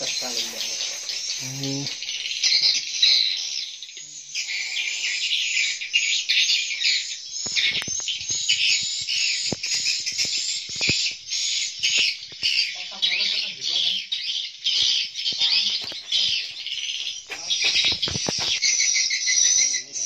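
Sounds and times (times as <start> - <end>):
swiftlets twittering: 0.0 - 3.7.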